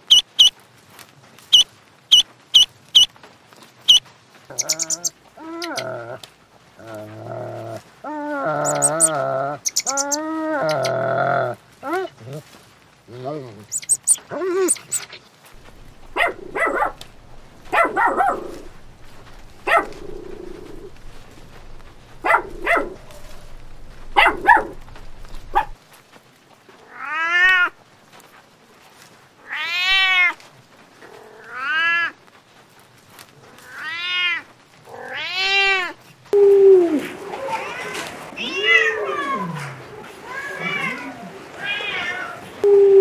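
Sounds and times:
short choppy animal calls: 0.0s - 0.5s, 1.5s - 3.1s, 3.9s - 5.9s, 8.6s - 11.0s, 13.7s - 25.8s
kittens meowing: 8.6s - 10.9s, 15.6s - 25.8s
low hum: 15.6s - 25.8s.

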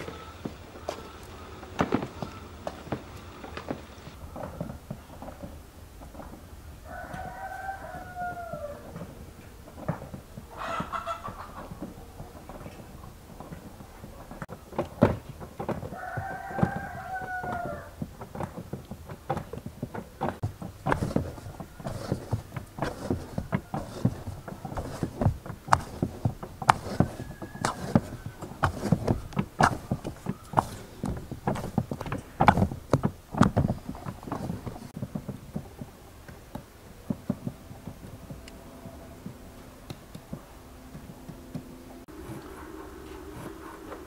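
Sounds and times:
rooster crowing: 6.8s - 9.2s, 10.5s - 11.7s, 15.8s - 18.0s, 26.7s - 32.3s
dough kneaded in metal bowl: 11.6s - 36.0s.

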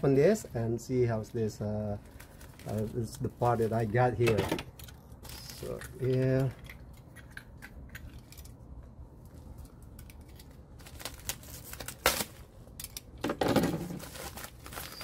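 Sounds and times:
plastic bag crinkling: 1.1s - 4.2s, 9.3s - 12.8s, 13.6s - 15.0s.

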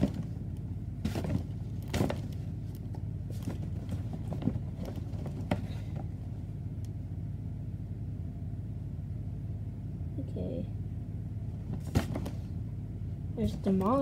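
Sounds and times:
foam balls knocking and rattling: 0.0s - 6.2s, 11.7s - 12.5s
steady low hum: 0.0s - 14.0s.

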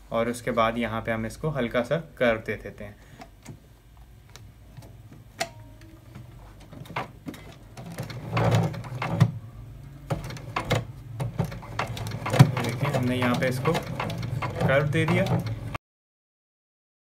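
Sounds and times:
clattering needle mechanism: 6.6s - 9.3s, 10.1s - 15.8s
sewing machine stitching: 6.6s - 9.4s, 10.1s - 15.8s
sewing machine clicks: 10.1s - 15.8s.

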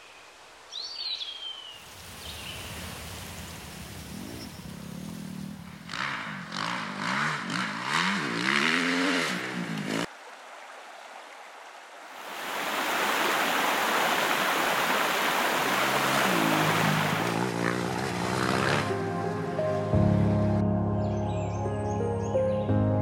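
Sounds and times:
motorcycle engine revving: 4.0s - 10.1s, 15.8s - 19.1s
waterfall rushing: 12.1s - 19.6s.

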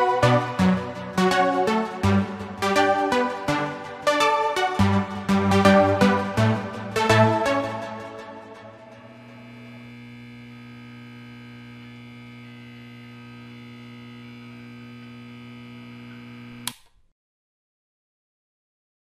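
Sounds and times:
low electronic hum: 8.2s - 16.6s
click: 16.6s - 17.1s.

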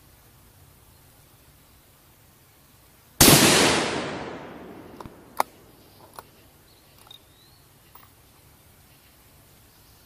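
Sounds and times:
rifle shot: 3.2s - 5.8s
rifle bolt metallic clicks: 4.4s - 6.3s.

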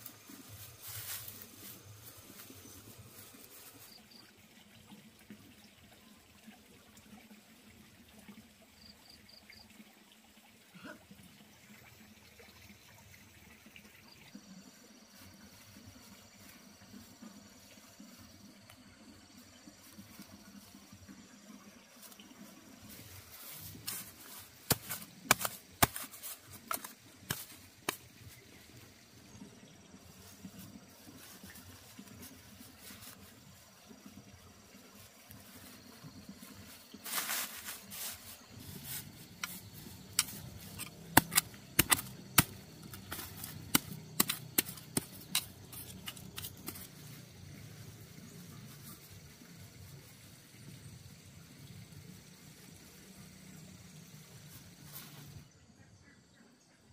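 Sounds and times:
dry straw crackling and rustling: 0.0s - 4.0s, 21.9s - 29.2s, 30.0s - 34.1s, 34.9s - 48.0s.

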